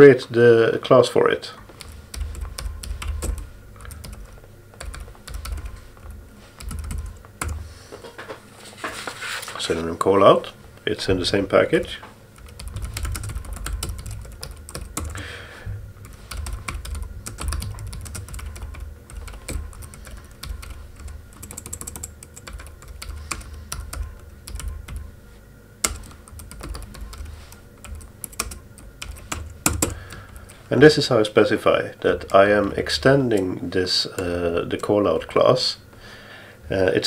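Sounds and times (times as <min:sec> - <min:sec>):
keyboard typing: 0:01.8 - 0:07.6, 0:12.4 - 0:15.3, 0:16.0 - 0:25.1, 0:25.8 - 0:30.6.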